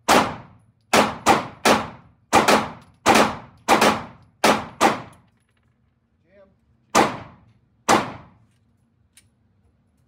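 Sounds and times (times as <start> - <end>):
pistol shots indoors: 0.0 - 5.2, 7.0 - 8.4.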